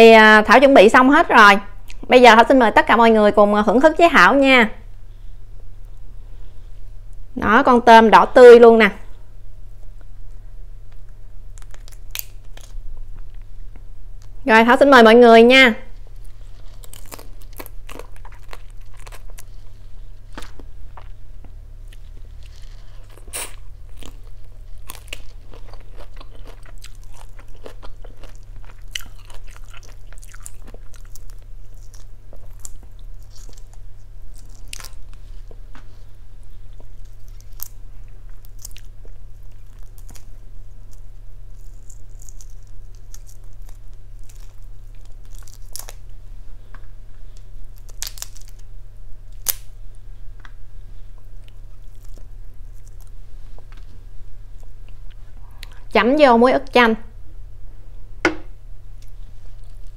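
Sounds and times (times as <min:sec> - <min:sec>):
faint low hum: 0:00.0 - 0:59.9
chewing: 0:16.1 - 0:21.2, 0:21.9 - 0:35.6, 0:36.7 - 0:46.0, 0:51.2 - 0:53.9.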